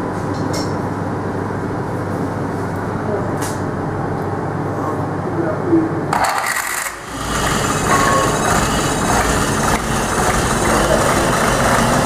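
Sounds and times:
car engine starting and idling: 6.1s - 12.0s.

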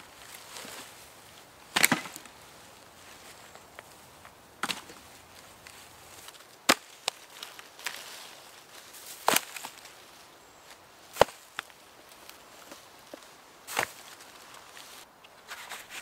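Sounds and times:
shovel chopping into ground: 1.8s - 2.3s, 6.7s - 7.0s.

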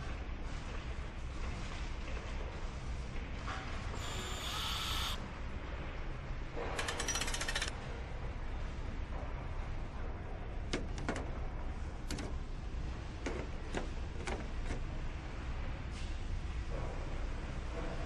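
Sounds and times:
low factory hum: 0.0s - 18.0s
fastening tool ratcheting: 6.8s - 7.7s
sharp metallic clicks and clinks: 6.8s - 7.7s.

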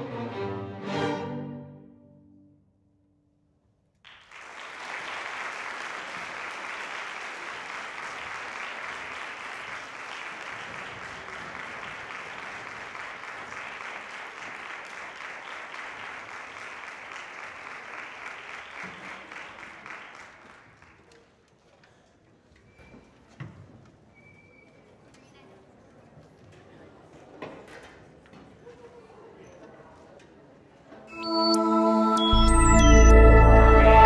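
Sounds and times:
audience applause: 4.1s - 21.1s.

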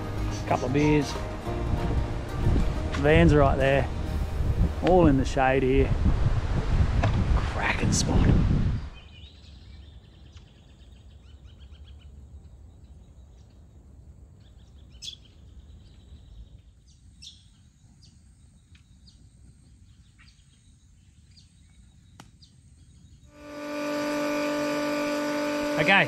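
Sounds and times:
low rumble: 0.0s - 9.0s
steady machine hum: 23.4s - 26.0s.

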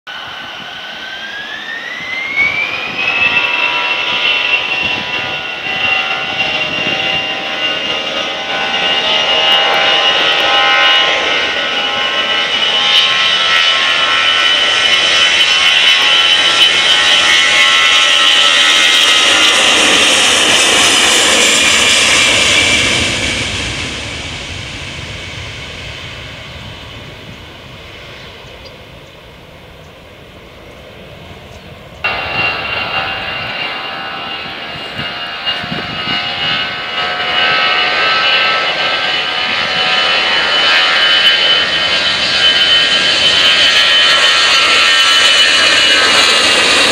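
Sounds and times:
jet engines roaring and whining: 0.1s - 46.9s.

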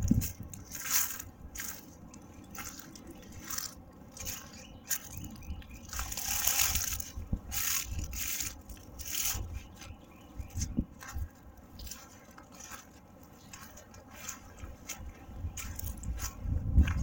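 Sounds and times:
low microphone rumble: 0.0s - 12.8s, 14.4s - 17.0s
footsteps in dry leaves: 0.0s - 17.0s.

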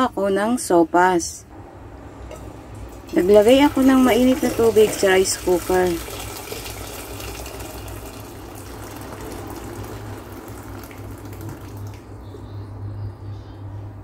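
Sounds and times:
water pouring into metal pot: 2.8s - 12.0s.

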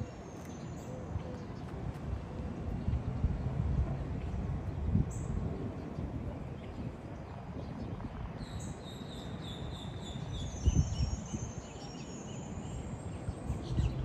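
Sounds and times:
wind buffeting microphone: 0.0s - 14.0s
birds whistling faintly: 7.6s - 14.0s.

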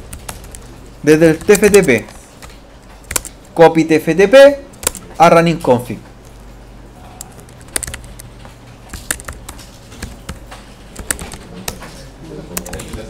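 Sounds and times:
typing on computer keyboard: 0.0s - 3.6s, 4.7s - 5.2s, 7.2s - 13.0s.

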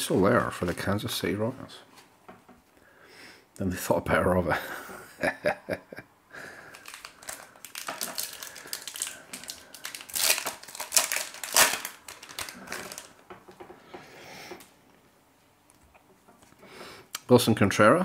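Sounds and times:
foil wrapper crinkling and tearing: 6.6s - 13.2s.

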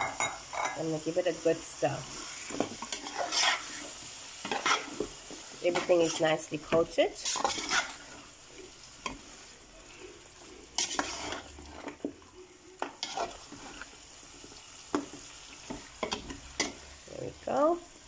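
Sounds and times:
faint sizzle: 0.0s - 18.0s
spoon stirring thick curry: 2.1s - 6.2s.

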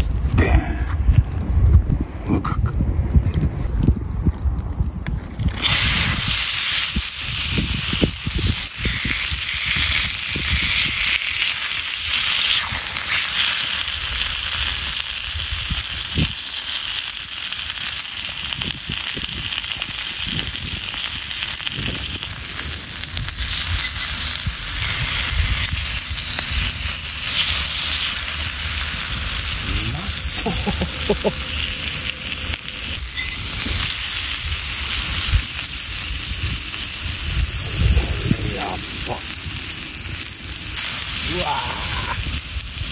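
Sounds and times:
wood fire crackling: 2.9s - 42.9s
meat sizzling in a frying pan: 5.5s - 42.9s.

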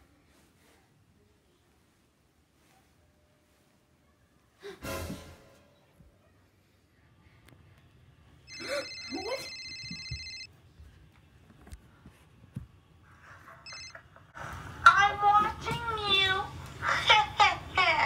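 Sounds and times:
electronic telephone ringing: 8.5s - 10.5s, 13.7s - 14.0s.

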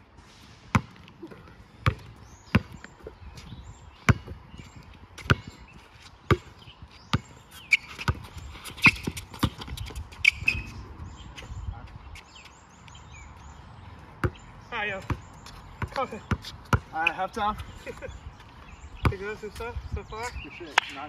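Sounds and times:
basketball bouncing: 0.7s - 2.9s, 4.1s - 4.4s, 5.2s - 5.6s, 6.3s - 10.7s, 14.2s - 14.4s, 15.0s - 17.0s.

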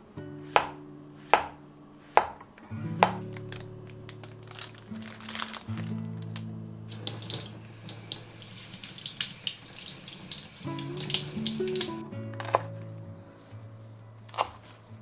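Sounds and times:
soft background music: 0.0s - 15.0s
tap water running into sink: 6.9s - 12.0s.

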